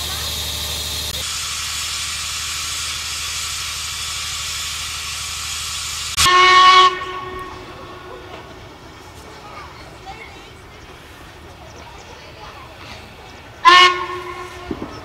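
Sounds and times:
steam locomotive hissing: 0:00.0 - 0:15.0
steam whistle blast: 0:06.1 - 0:07.7, 0:13.6 - 0:15.0.

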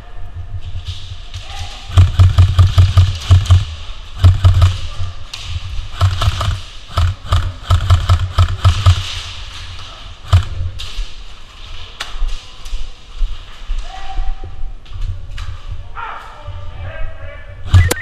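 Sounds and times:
airsoft guns firing: 0:01.5 - 0:05.1, 0:05.7 - 0:09.4, 0:10.2 - 0:10.6.

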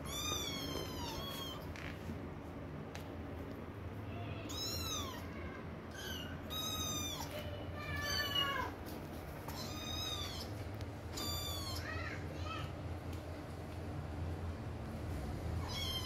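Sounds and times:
kittens meowing: 0:00.0 - 0:01.7, 0:04.1 - 0:08.8, 0:09.5 - 0:12.2, 0:15.6 - 0:16.0.

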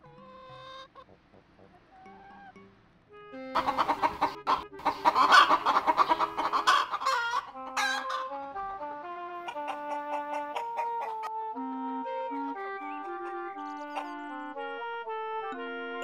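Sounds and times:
chickens clucking and squawking: 0:00.0 - 0:02.6, 0:03.6 - 0:08.6, 0:09.4 - 0:11.3, 0:12.8 - 0:14.4
music of short stepping notes: 0:00.0 - 0:16.0.

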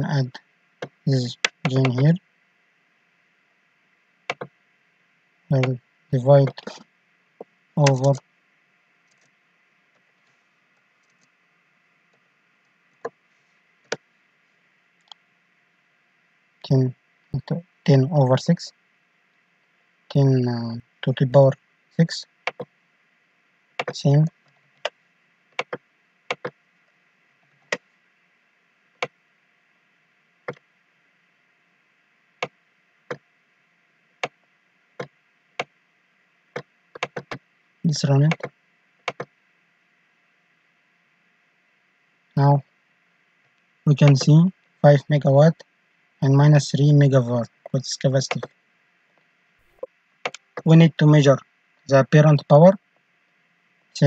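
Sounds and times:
faint room hiss: 0:00.0 - 0:54.0
computer mouse clicking: 0:04.3 - 0:04.5, 0:22.4 - 0:22.7, 0:25.6 - 0:26.6, 0:36.6 - 0:37.4, 0:38.3 - 0:38.5, 0:39.1 - 0:39.3, 0:48.3 - 0:48.6
keyboard taps: 0:25.6 - 0:26.5, 0:36.6 - 0:37.4, 0:39.1 - 0:39.3, 0:48.3 - 0:48.5.

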